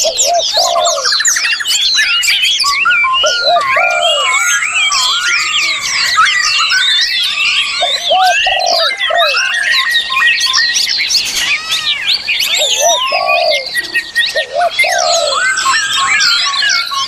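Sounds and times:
songbirds chorus: 0.0s - 17.0s.

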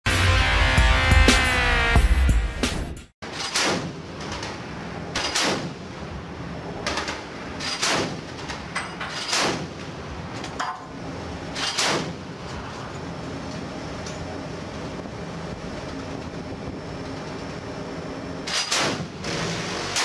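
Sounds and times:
chain gun single shots: 3.3s - 4.6s, 5.2s - 5.8s, 6.9s - 9.8s, 11.5s - 12.3s, 18.4s - 20.0s
low rumble of wind: 3.3s - 19.4s.

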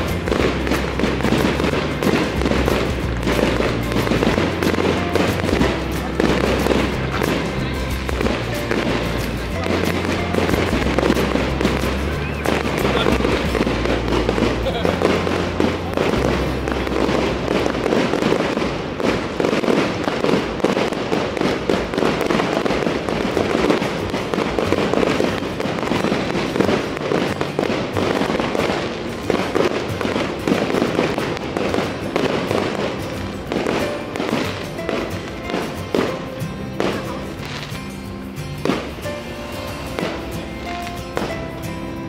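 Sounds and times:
fireworks crackling and popping: 0.0s - 42.0s.

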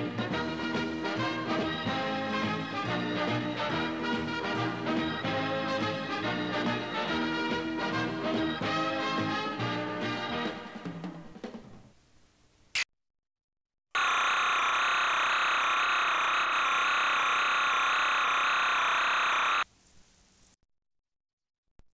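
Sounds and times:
steady electronic buzzing tone: 14.0s - 19.6s.

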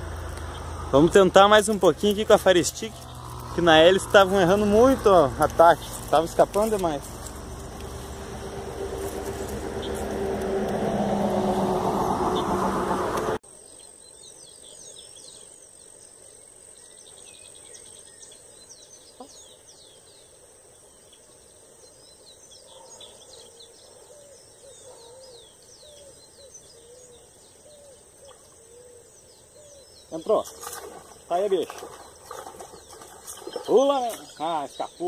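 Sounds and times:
birds chirping and calling: 0.0s - 13.4s, 22.0s - 35.0s
loud rushing noise: 6.9s - 13.4s
lower repeated bird calls: 21.9s - 35.0s.

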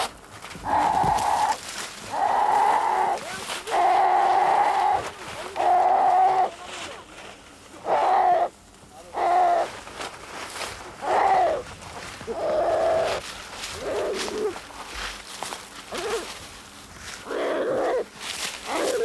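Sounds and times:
deer crying out in distress: 0.6s - 6.5s, 7.8s - 8.5s, 9.1s - 9.7s, 11.0s - 11.7s, 12.3s - 13.2s, 18.7s - 19.0s.

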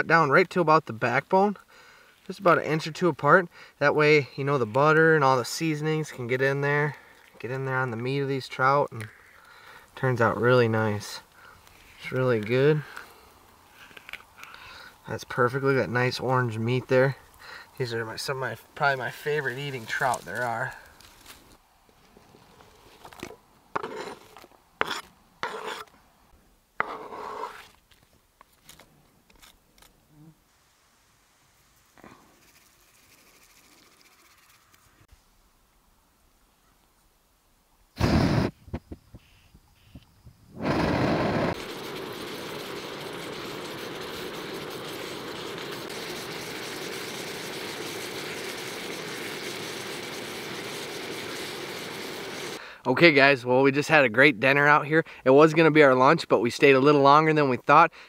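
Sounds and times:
food scraped into frying pan: 23.8s - 25.9s, 26.8s - 27.8s
gas stove hissing: 38.0s - 38.6s, 40.5s - 52.6s
gas stove igniting burst: 38.0s - 38.6s, 40.5s - 52.6s.

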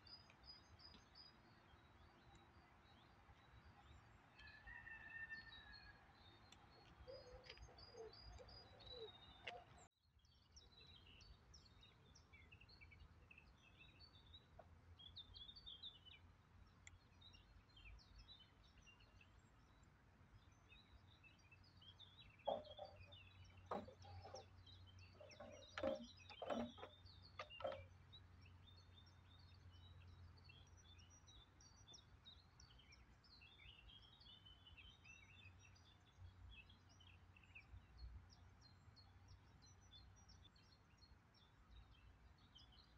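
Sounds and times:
small birds chirping: 0.0s - 42.9s
knocks and clatters: 22.5s - 28.0s.

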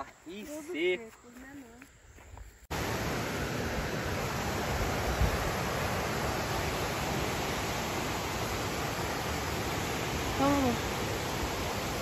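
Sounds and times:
water rushing over rocks: 2.7s - 12.0s.

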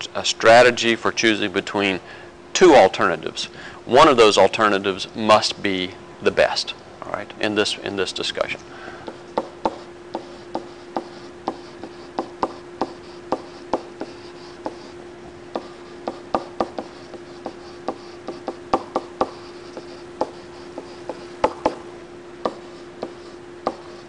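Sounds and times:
steady low hum: 0.0s - 24.0s
pen tapping and scratching: 9.1s - 14.9s, 15.5s - 21.8s, 22.5s - 24.0s.

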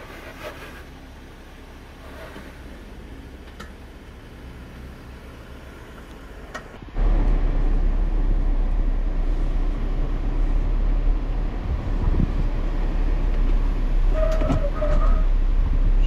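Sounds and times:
vehicle engine rumble: 0.0s - 16.0s.

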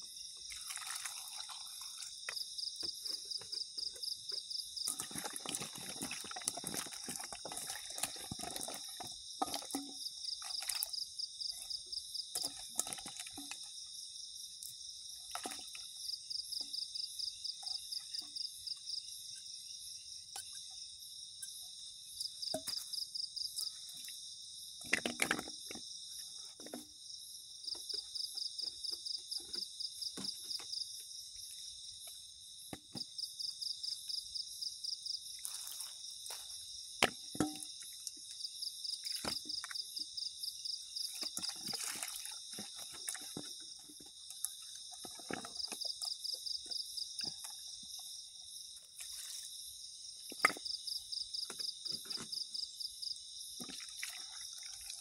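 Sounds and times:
night insects chirping: 0.0s - 55.0s
splashing in metal pot of water: 0.4s - 2.3s, 4.8s - 13.8s, 15.2s - 16.0s, 37.3s - 38.3s, 41.0s - 46.2s, 53.6s - 55.0s
rapidly pulsed insect trill: 25.5s - 55.0s.

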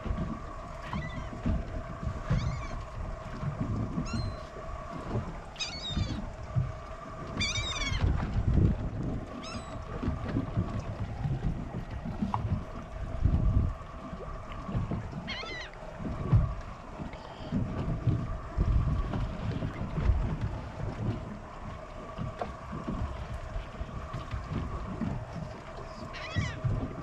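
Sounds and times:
low rumble of wind or water: 0.0s - 27.0s
steady hum: 0.0s - 27.0s
high-pitched mewing animal calls: 2.2s - 2.8s, 5.6s - 6.3s, 7.4s - 8.1s, 9.4s - 9.8s, 15.2s - 15.8s, 26.1s - 26.6s.

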